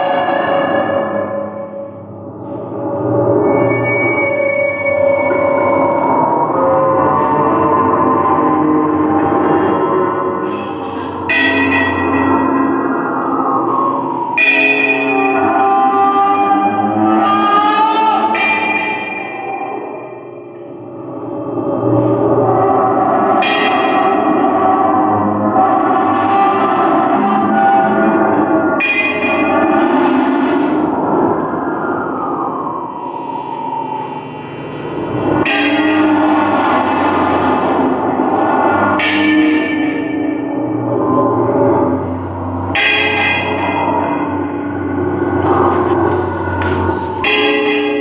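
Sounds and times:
gong-like metallic tones: 0:00.0 - 0:48.0
guitar and drums ringing drone: 0:00.0 - 0:48.0.

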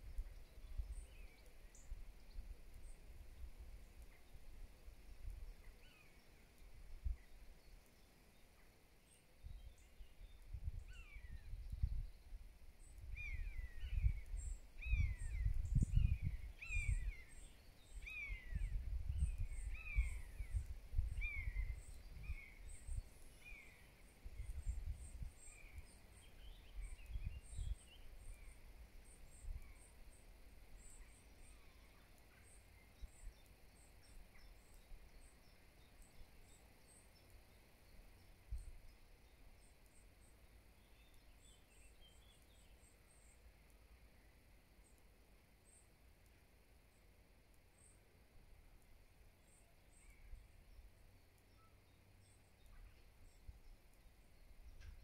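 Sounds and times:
faint high chirps: 0:00.0 - 0:55.0
wind buffeting microphone: 0:13.0 - 0:17.2, 0:18.3 - 0:23.1.

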